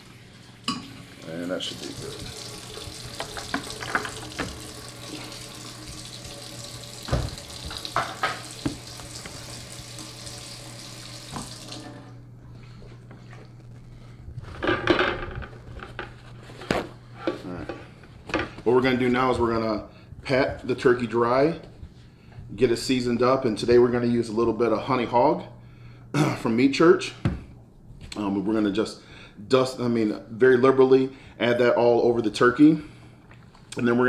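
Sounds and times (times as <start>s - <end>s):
faucet running into steel sink: 0.0s - 12.1s
splashes and knocks: 7.0s - 9.4s
dull thump on cutting board: 7.1s - 7.4s
paper towel rustling: 12.6s - 22.9s.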